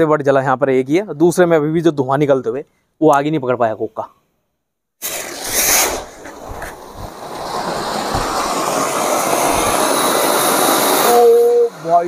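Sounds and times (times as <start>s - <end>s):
firework fountain hissing: 5.0s - 12.0s.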